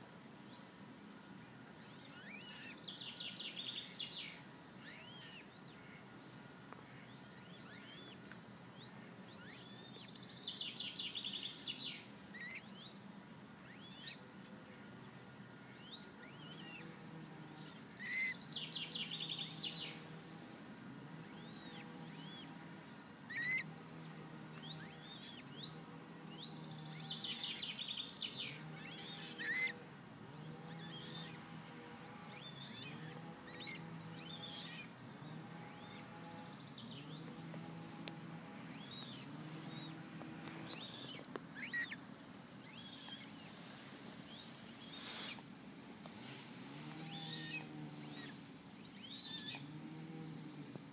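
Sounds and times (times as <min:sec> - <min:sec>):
trilled bird song: 0:00.0 - 0:45.6, 0:46.7 - 0:50.9
low steady hum: 0:00.0 - 0:50.9
small birds chirping: 0:00.0 - 0:50.9.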